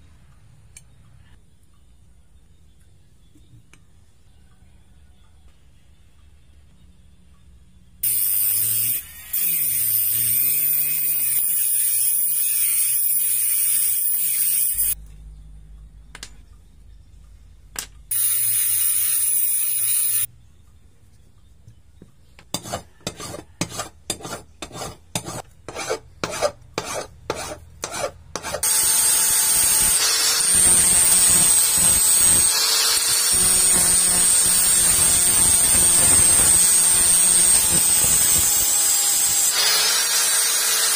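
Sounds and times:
angle grinder grinding: 0:08.0 - 0:15.0, 0:18.1 - 0:20.3, 0:22.6 - 0:40.9
rotary tool whining: 0:08.0 - 0:15.0, 0:27.4 - 0:40.9.

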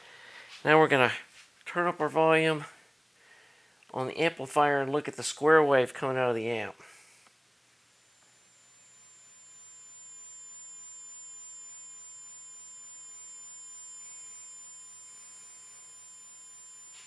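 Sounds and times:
buzzy square-wave test tone: 0:04.0 - 0:17.0.

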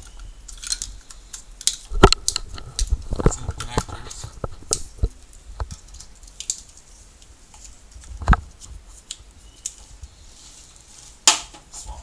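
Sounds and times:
plastic connectors clicking: 0:00.0 - 0:04.1.

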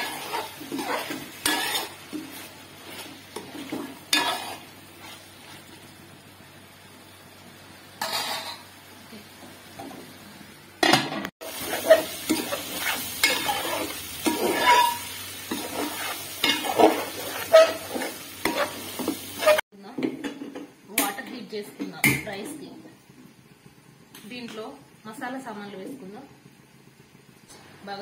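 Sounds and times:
metal ladle scraping pot: 0:00.0 - 0:05.6, 0:11.5 - 0:19.6
curry sizzling in hot oil: 0:00.0 - 0:10.2, 0:11.4 - 0:19.6.

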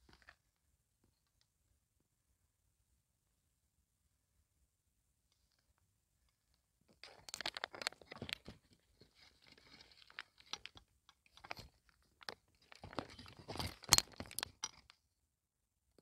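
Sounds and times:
cat crunching dry snacks: 0:07.1 - 0:08.4.

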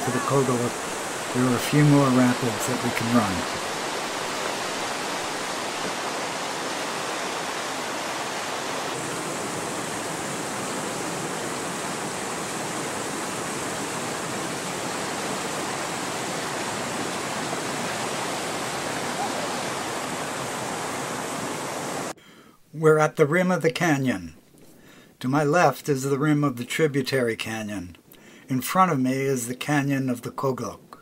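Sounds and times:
river rapids rushing: 0:00.0 - 0:22.1.

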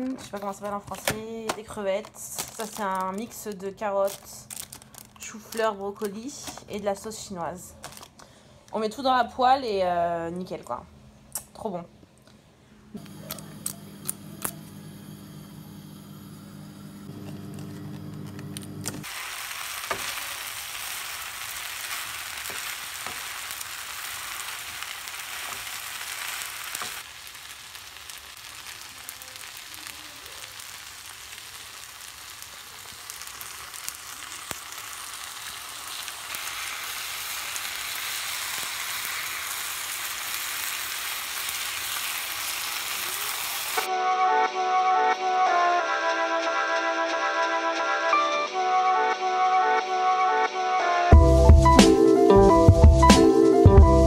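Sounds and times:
food sizzling in a frying pan: 0:19.0 - 0:43.9.

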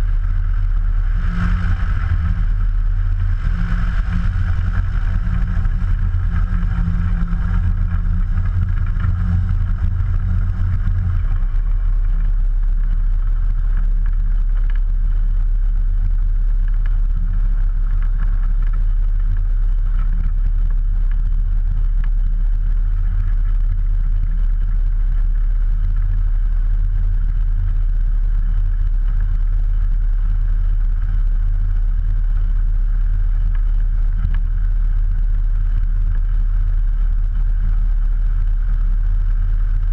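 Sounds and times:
aircraft engine and propeller: 0:00.0 - 0:14.9.

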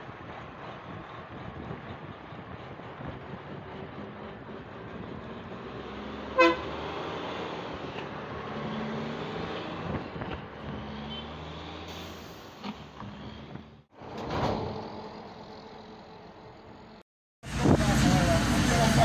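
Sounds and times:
dump truck diesel engine: 0:00.0 - 0:19.0
truck horn toot: 0:06.3 - 0:06.9.

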